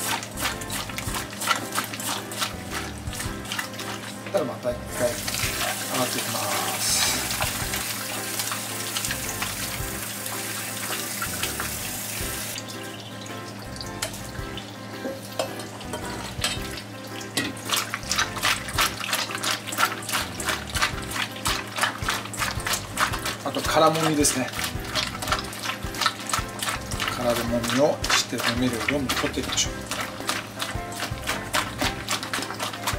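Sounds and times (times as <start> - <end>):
tap water running into steel bowl: 0.0 - 32.9
hands kneading squid wet squelches: 18.0 - 32.9.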